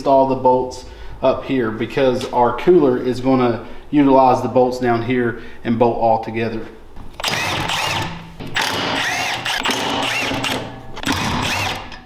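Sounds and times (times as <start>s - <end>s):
power driver motor whining: 7.2s - 12.0s.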